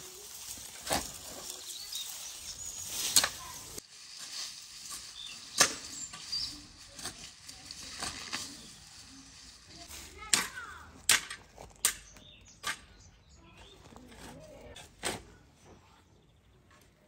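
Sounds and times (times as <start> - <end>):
shovel digging into soil: 0.1 - 8.8.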